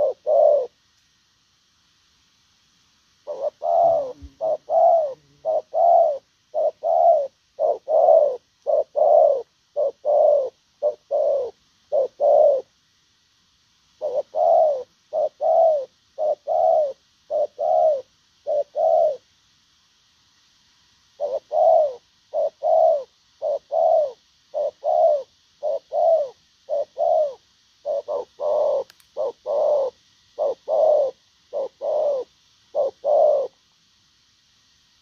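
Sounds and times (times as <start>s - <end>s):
dove cooing: 0.0s - 0.8s, 3.2s - 12.7s, 14.0s - 19.3s, 21.2s - 33.6s.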